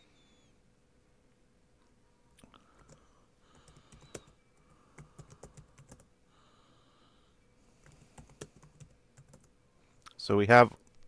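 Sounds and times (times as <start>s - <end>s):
computer keyboard typing: 2.8s - 6.1s, 7.8s - 9.5s.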